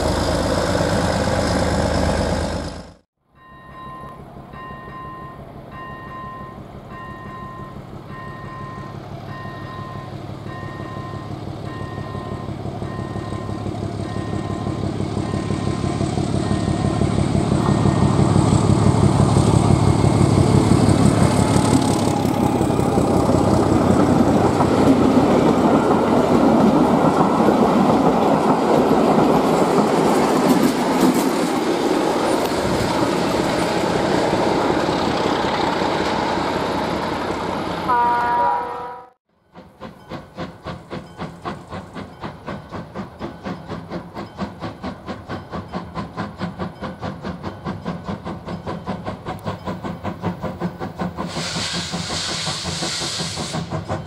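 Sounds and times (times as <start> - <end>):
diesel locomotive engine humming: 0.0 - 54.0
steam locomotive chuffing: 4.2 - 38.0, 39.4 - 54.0
train wheels clattering over rails: 9.6 - 37.8, 39.4 - 54.0
train horn blast: 37.9 - 39.2.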